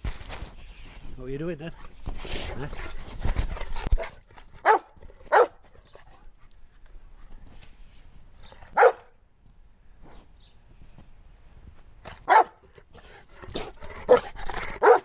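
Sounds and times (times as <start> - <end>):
dog barking: 4.6 - 5.6, 8.8 - 9.1, 12.3 - 12.6, 14.8 - 15.0.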